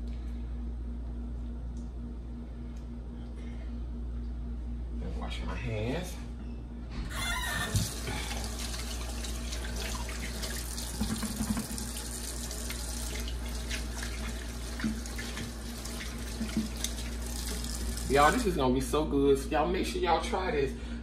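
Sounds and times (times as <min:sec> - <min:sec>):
faucet running into steel sink: 0:07.6 - 0:18.4
hands washing under water: 0:07.6 - 0:18.4.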